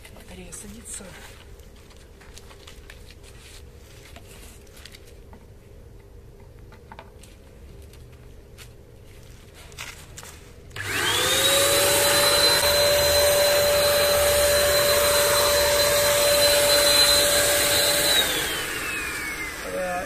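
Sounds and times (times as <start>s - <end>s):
electric paint sprayer whine: 10.8s - 20.0s.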